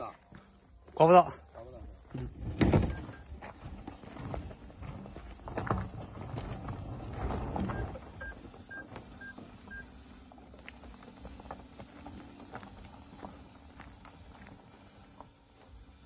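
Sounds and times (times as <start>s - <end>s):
tyres crunching over gravel: 0.0s - 16.0s
electronic warning chime beeps: 7.7s - 9.9s.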